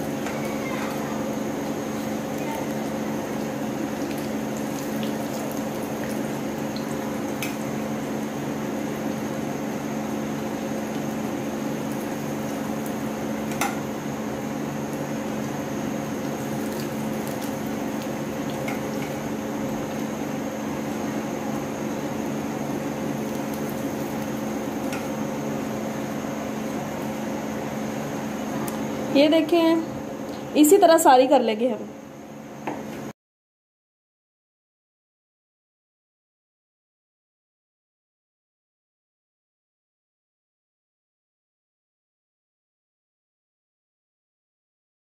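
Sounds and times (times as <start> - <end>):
oil sizzling in a frying pan: 0.0 - 27.3.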